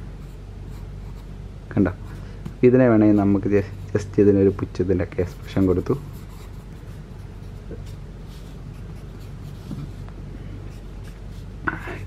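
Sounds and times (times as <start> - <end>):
low steady hum: 0.0 - 12.0
pencil scratching on paper: 5.2 - 10.0.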